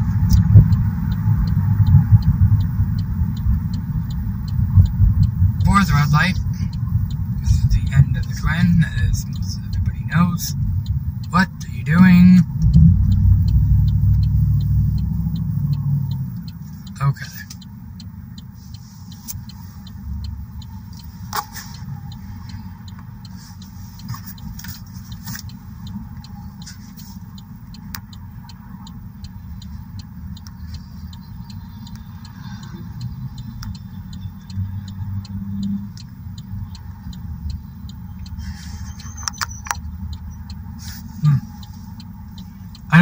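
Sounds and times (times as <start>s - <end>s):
car engine idling: 0.0s - 43.0s
faint clicks: 12.5s - 42.9s.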